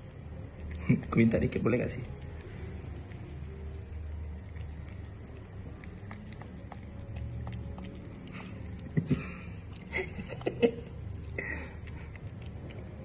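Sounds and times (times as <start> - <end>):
cat licking: 0.0 - 13.0.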